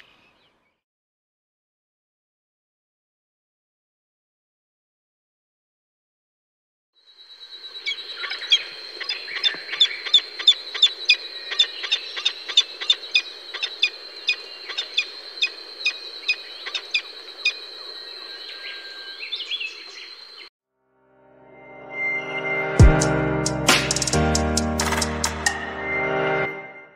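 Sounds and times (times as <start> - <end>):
falcon chittering calls: 7.8 - 20.1
steady high tone: 21.0 - 26.9.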